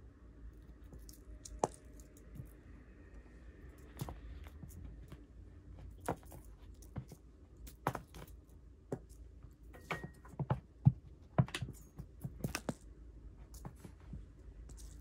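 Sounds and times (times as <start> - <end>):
cat paws tapping and thumping: 3.8 - 15.0.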